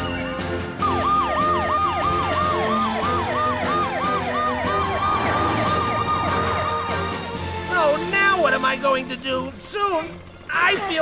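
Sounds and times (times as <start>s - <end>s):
yelping emergency siren: 0.7s - 7.5s
second siren: 0.8s - 7.3s.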